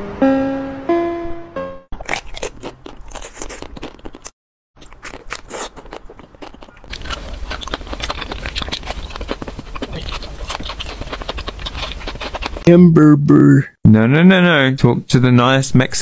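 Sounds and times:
crunching and chewing ice cream: 2.0s - 12.6s.

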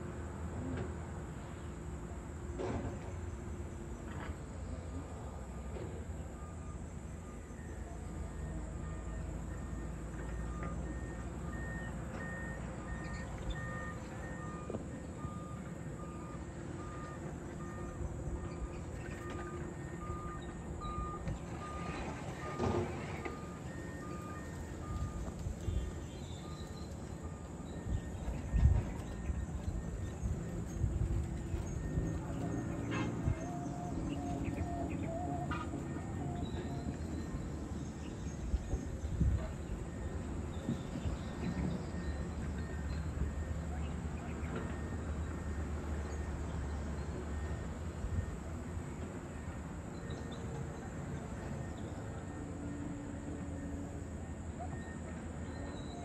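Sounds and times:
low rumble of engines: 0.0s - 56.0s
backup alarm beeping: 6.4s - 37.7s
birds chirping: 23.2s - 45.4s.

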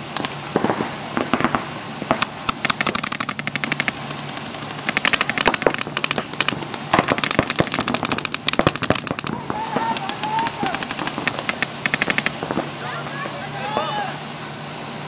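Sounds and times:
paintball markers firing rapidly: 1.3s - 12.4s.

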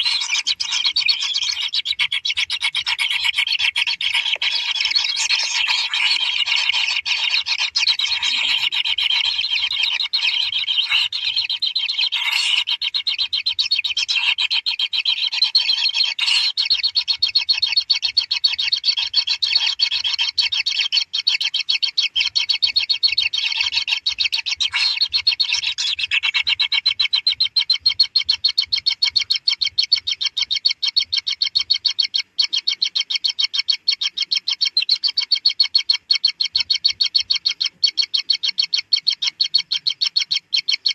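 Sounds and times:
nestlings churring: 0.0s - 15.0s.

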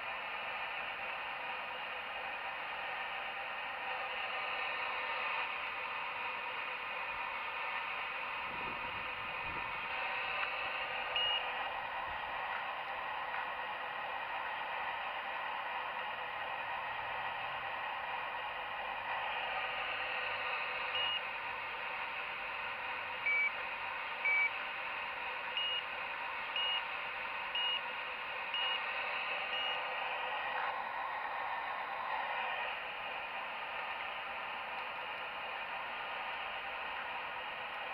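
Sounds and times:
short electronic beeps: 11.2s - 11.4s, 21.0s - 21.2s, 23.3s - 23.6s, 24.3s - 24.5s, 25.6s - 25.8s, 26.6s - 26.8s, 27.6s - 27.8s, 28.6s - 28.8s, 29.5s - 29.8s.

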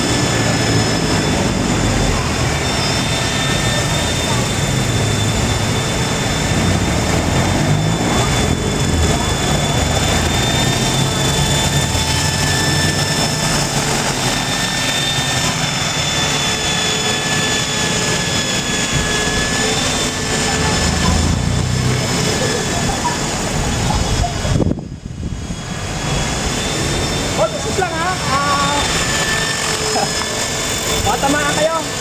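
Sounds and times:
electric motor high whine: 0.0s - 32.0s
rotor blades beating: 0.0s - 32.0s.

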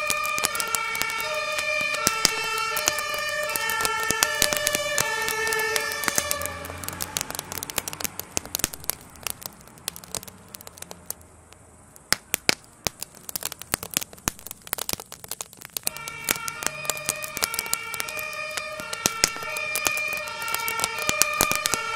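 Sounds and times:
two-tone siren: 0.0s - 7.4s, 15.8s - 21.9s
fire crackling and popping: 0.0s - 21.9s.

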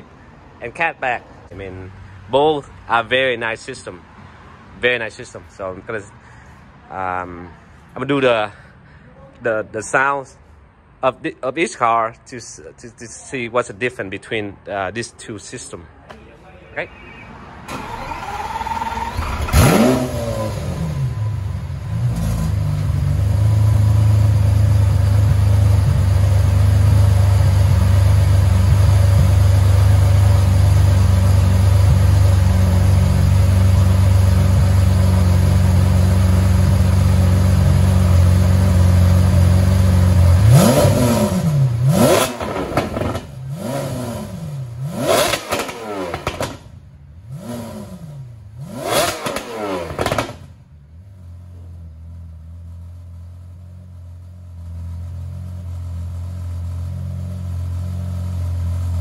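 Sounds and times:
car starter cranking: 17.7s - 20.6s
car engine revving and idling: 17.7s - 59.0s.

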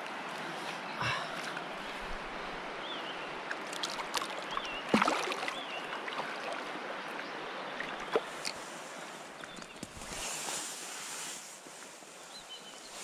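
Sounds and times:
river water lapping and splashing: 0.0s - 13.0s
sharp splash: 3.7s - 5.6s.

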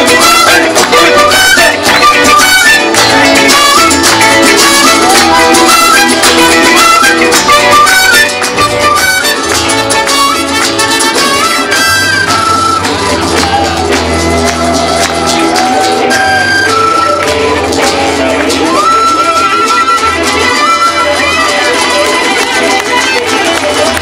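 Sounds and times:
charango: 0.0s - 24.0s
lead melody: 0.0s - 24.0s
shaken percussion: 0.0s - 24.0s
strummed acoustic guitar: 0.0s - 24.0s.

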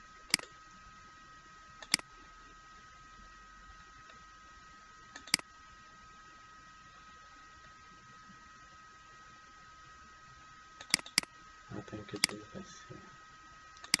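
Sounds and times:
high-pitched electrical whine: 0.0s - 14.0s
small ticks: 0.2s - 0.9s, 1.8s - 2.6s, 4.0s - 4.3s, 5.1s - 5.6s, 10.8s - 11.4s, 13.7s - 14.0s
computer mouse click: 0.3s - 0.5s, 1.8s - 2.1s, 5.2s - 5.5s, 10.8s - 11.3s, 12.2s - 12.4s, 13.8s - 14.0s.

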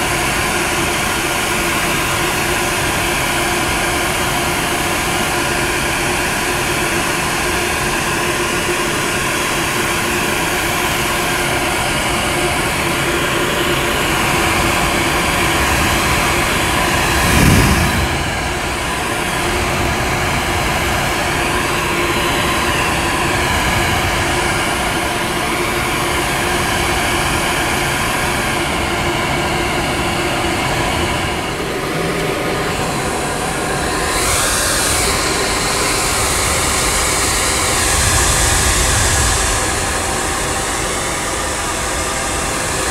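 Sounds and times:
blow dryer running: 0.0s - 42.9s
low thump: 17.2s - 18.7s.

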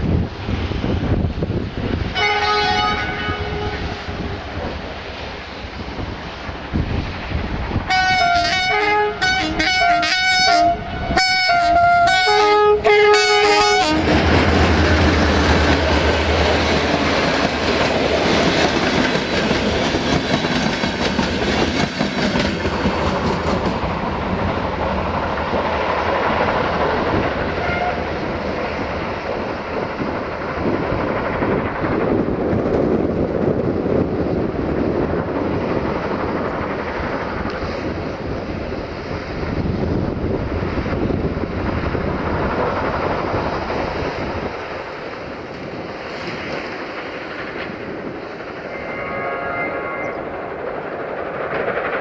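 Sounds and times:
coaches rumbling over rails: 0.0s - 52.0s
locomotive horn: 2.2s - 4.4s, 7.9s - 14.2s, 27.5s - 28.2s, 48.6s - 50.4s
locomotive engine droning: 45.3s - 52.0s.

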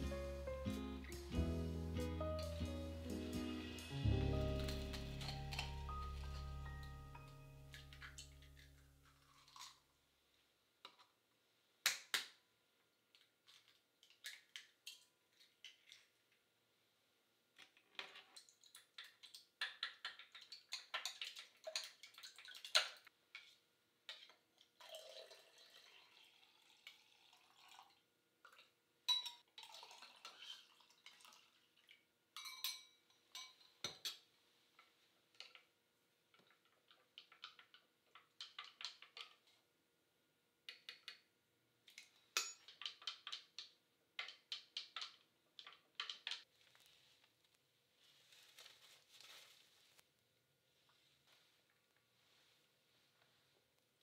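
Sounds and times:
liquid pouring into a jug: 24.7s - 28.7s, 29.5s - 32.1s.

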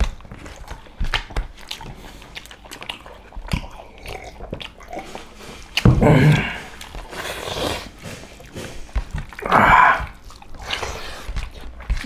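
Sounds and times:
chewing and mouth smacks: 0.0s - 12.0s.

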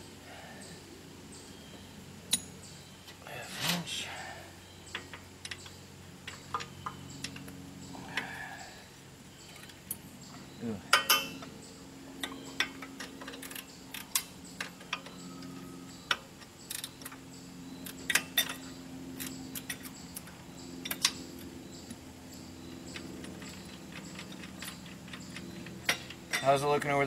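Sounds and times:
faint low hum: 0.0s - 27.0s
wrenches clinking against metal: 10.9s - 11.4s, 17.9s - 20.0s, 23.0s - 27.0s.

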